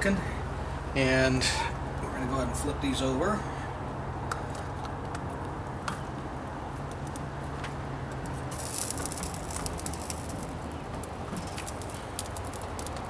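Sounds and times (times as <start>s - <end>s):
ribs clicking on wire rack: 8.1s - 13.0s.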